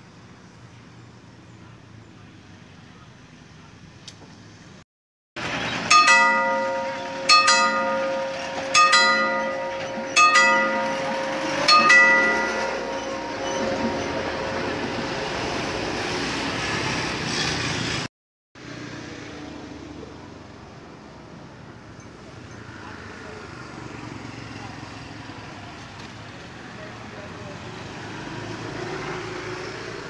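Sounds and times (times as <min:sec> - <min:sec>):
outdoor noise: 0:00.0 - 0:04.8, 0:05.4 - 0:30.0
vehicle noise: 0:05.4 - 0:30.0
bell-like chimes: 0:05.8 - 0:15.6.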